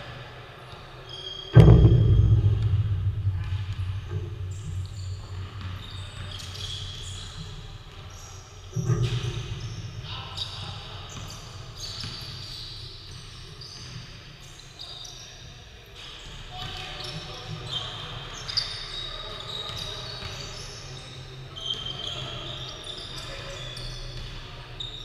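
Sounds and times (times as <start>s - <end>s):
loud booming thuds echoing: 1.6s - 5.9s.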